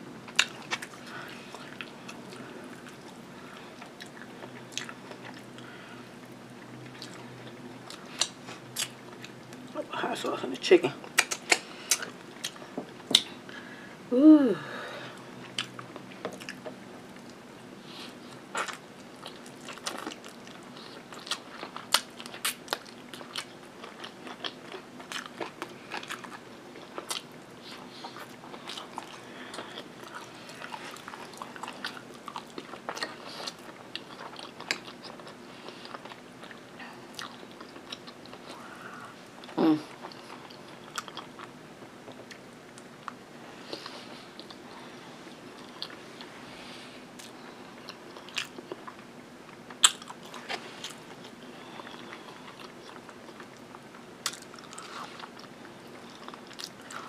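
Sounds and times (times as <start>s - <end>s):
close chewing with mouth smacks: 0.3s - 5.7s, 6.6s - 9.8s, 11.0s - 13.4s, 15.4s - 17.4s, 18.1s - 38.6s, 39.4s - 41.5s, 45.4s - 46.3s, 47.2s - 57.0s
person humming briefly: 14.1s - 14.9s.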